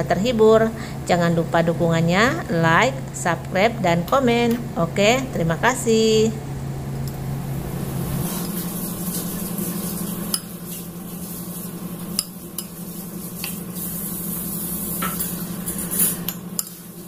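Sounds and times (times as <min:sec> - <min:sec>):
steady low hum: 0:00.0 - 0:17.0
metal spoon scraping in bowl: 0:15.0 - 0:16.8.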